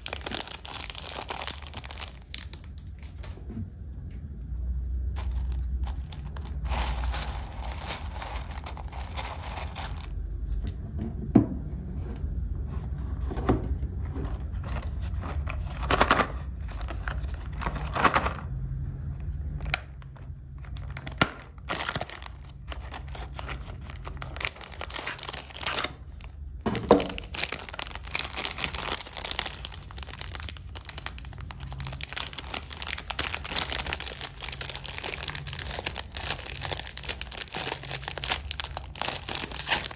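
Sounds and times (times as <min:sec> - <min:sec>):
wrappers crinkling and tearing: 0:00.0 - 0:03.1, 0:05.2 - 0:10.1, 0:20.6 - 0:26.4, 0:27.0 - 0:39.9.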